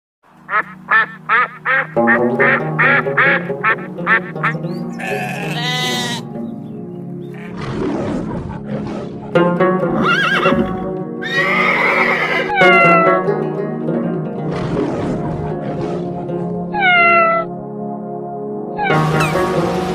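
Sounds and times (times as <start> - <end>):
background music: 0.3 - 19.9
geese honking: 0.4 - 7.6, 9.2 - 13.2, 16.1 - 17.5, 18.8 - 19.9
sheep bleating: 4.8 - 6.4, 7.3 - 7.7.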